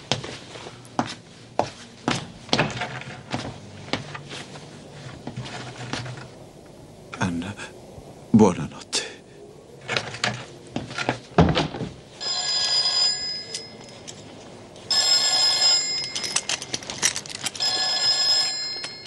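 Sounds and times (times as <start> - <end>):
desk telephone ringing: 12.2 - 19.0.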